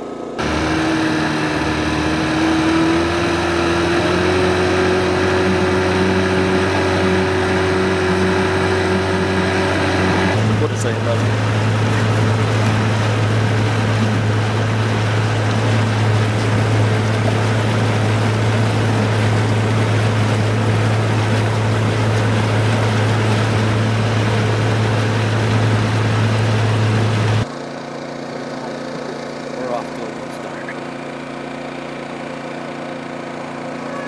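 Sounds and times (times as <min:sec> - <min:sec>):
boat engine humming: 0:00.0 - 0:34.0
wind: 0:00.0 - 0:34.0
water spray rushing: 0:00.4 - 0:27.4.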